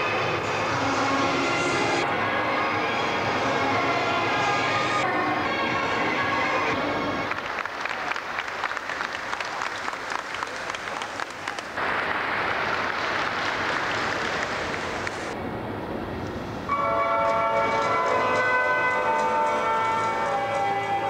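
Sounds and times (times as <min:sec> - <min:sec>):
audience clapping: 0:07.1 - 0:15.4.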